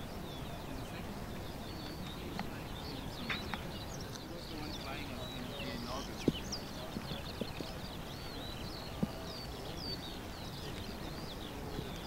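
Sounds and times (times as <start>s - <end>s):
outdoor background noise: 0.0s - 12.0s
small birds twittering: 0.0s - 12.0s.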